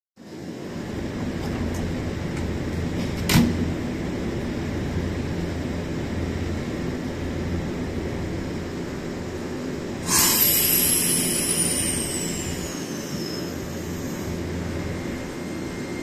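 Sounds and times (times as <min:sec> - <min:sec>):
electric train humming: 0:00.6 - 0:16.0.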